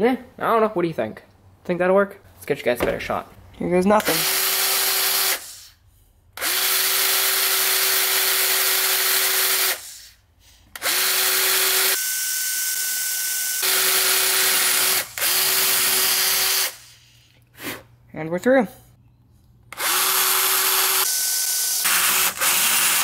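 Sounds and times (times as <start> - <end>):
cordless drill drilling metal: 4.0 - 5.4, 6.4 - 9.8, 10.8 - 16.9, 19.7 - 23.0.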